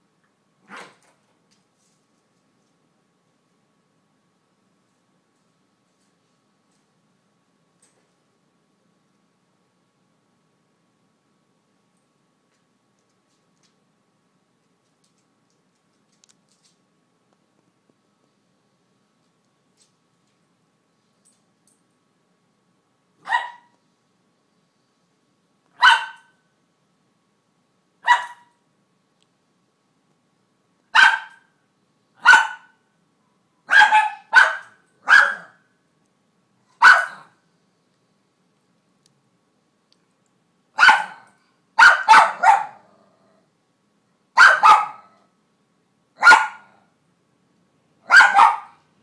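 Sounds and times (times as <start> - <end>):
dog barking: 23.2 - 23.7, 25.8 - 26.4, 28.0 - 28.5, 30.9 - 31.5, 32.2 - 32.8, 33.7 - 35.6, 36.8 - 37.4, 40.8 - 42.9, 44.4 - 45.2, 46.2 - 46.8, 48.0 - 48.8.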